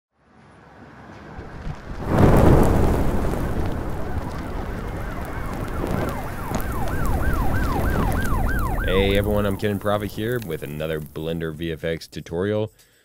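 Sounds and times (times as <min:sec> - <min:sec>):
flames whooshing and roaring: 0:00.6 - 0:11.6
siren wailing: 0:03.4 - 0:11.7.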